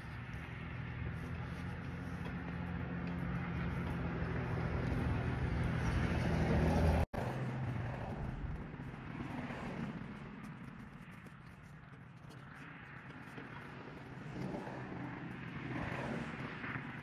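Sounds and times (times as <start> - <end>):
passing vehicle engine hum: 0.0 - 17.0
quiet vehicle noise: 0.0 - 17.0.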